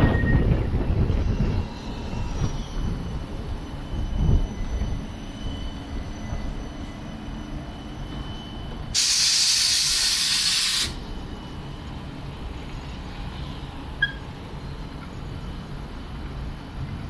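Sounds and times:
tram passing rumble: 0:00.0 - 0:17.0
air release hiss: 0:08.9 - 0:11.0.

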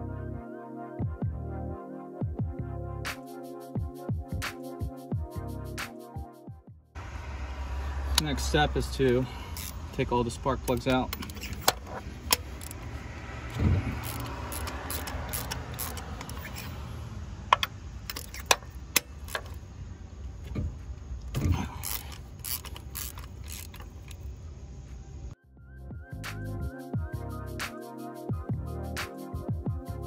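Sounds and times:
ratchet clicking: 0:08.1 - 0:16.8, 0:17.5 - 0:19.6, 0:21.2 - 0:24.4
metal tool clatter: 0:10.7 - 0:12.8.

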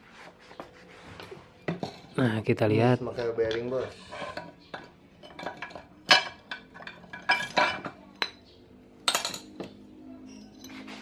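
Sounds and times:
metal parts clinking: 0:05.2 - 0:08.0, 0:09.0 - 0:09.7.

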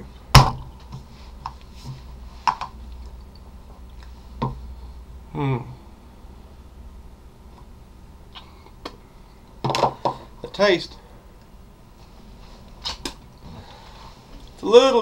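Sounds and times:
person humming: 0:05.3 - 0:05.8.

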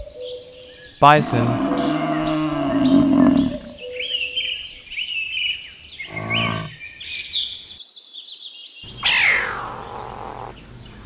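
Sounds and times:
small birds chirping: 0:00.0 - 0:11.0
bison grunting: 0:01.0 - 0:04.0, 0:06.0 - 0:06.8.

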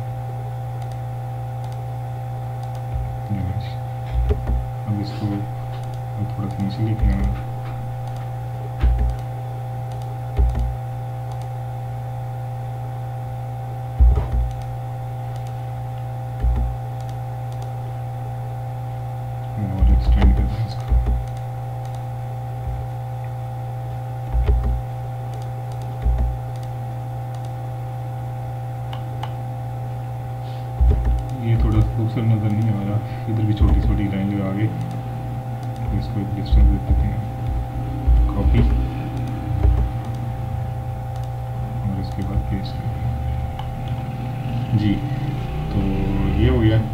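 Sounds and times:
electrical hum: 0:00.0 - 0:46.9
mouse and keyboard clicks: 0:09.9 - 0:10.7.

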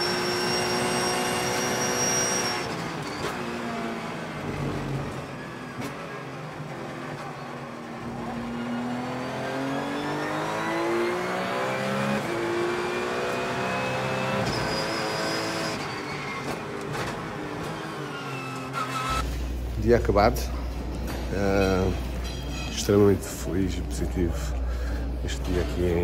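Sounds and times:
race car engine accelerating: 0:00.0 - 0:19.3.

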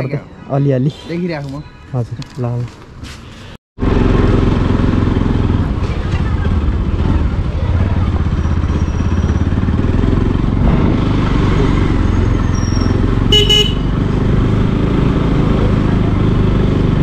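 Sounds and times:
motorcycle engine running: 0:03.8 - 0:17.0
vehicle horn toot: 0:12.5 - 0:14.0.

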